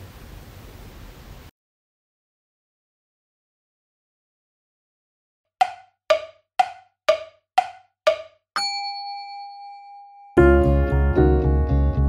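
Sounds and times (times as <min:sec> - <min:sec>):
short percussive knocks: 0:05.6 - 0:08.6
bell-like ding: 0:05.6 - 0:10.4.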